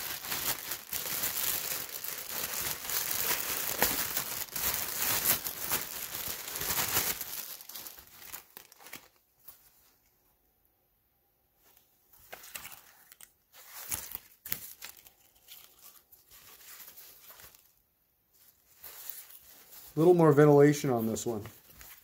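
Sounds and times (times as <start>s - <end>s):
plastic bag crinkling and tearing: 0.0s - 9.2s, 12.4s - 17.8s.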